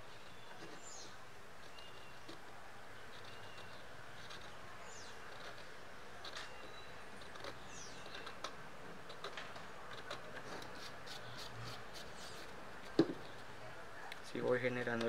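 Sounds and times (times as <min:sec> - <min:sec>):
screw scratching hard shell: 0:03.0 - 0:13.4.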